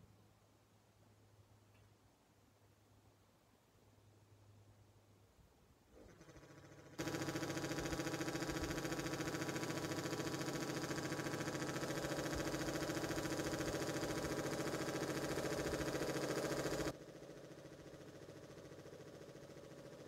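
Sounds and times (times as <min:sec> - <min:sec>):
air compressor running: 0:06.0 - 0:20.0.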